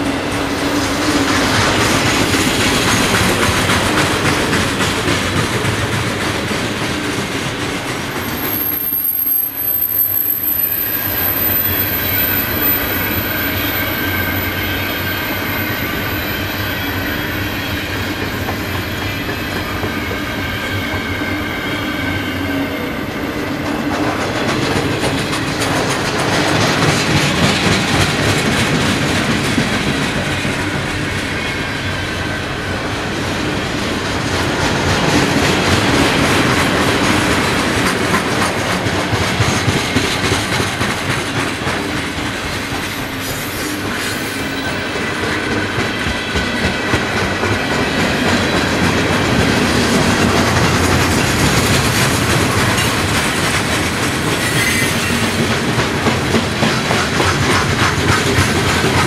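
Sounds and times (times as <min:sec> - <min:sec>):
wheels clacking over rail joints: 0:00.0 - 0:08.7, 0:23.6 - 0:31.5, 0:33.9 - 0:44.2, 0:44.8 - 0:59.0
freight train rumbling: 0:00.0 - 0:59.0
high-pitched wheel squeal: 0:08.1 - 0:19.4, 0:42.9 - 0:45.0, 0:54.4 - 0:55.4.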